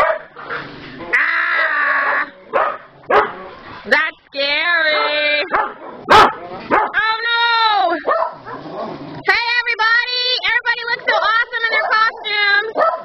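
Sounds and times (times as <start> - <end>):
small dogs barking and yowling: 0.0 - 3.7, 4.8 - 9.0, 11.0 - 13.0.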